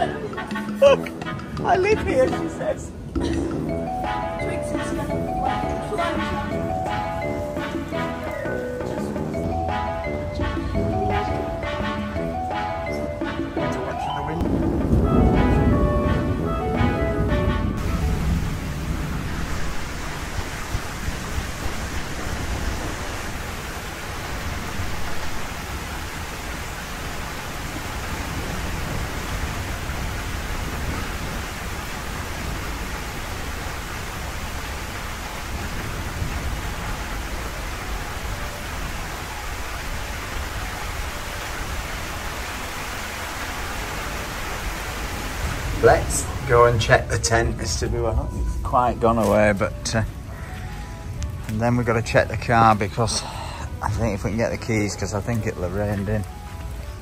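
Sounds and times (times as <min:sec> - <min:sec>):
heavy rain pouring: 0:00.0 - 0:57.0
low thunder rumbling: 0:14.4 - 0:50.3.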